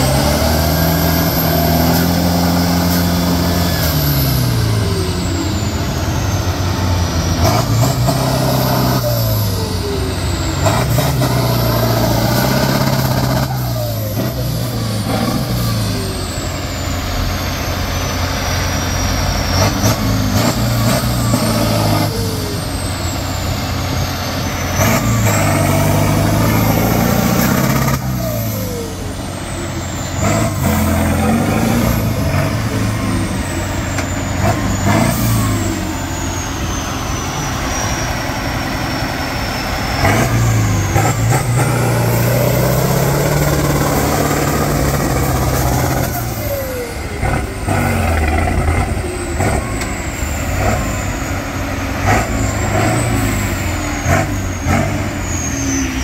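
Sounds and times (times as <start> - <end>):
diesel engine revving: 0.0 - 56.0
high whistle: 49.6 - 56.0.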